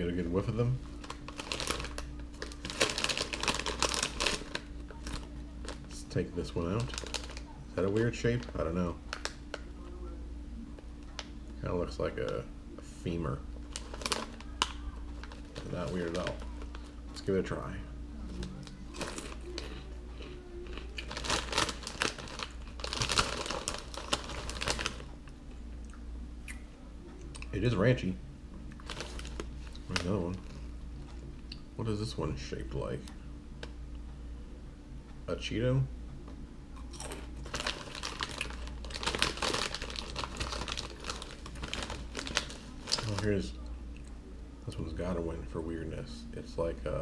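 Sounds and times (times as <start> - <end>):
foil snack bag crinkling: 0.0 - 9.7, 13.0 - 17.7, 18.3 - 25.1, 28.7 - 30.6, 36.9 - 43.6
crunchy snack chewing: 18.8 - 25.0, 36.8 - 43.2.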